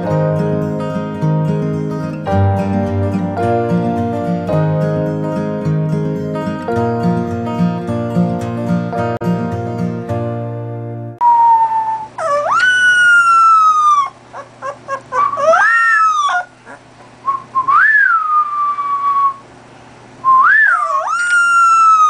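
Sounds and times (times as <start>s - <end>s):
puppy howling: 11.2s - 16.9s, 20.5s - 22.0s
puppy yipping: 11.4s - 16.9s, 20.5s - 22.0s.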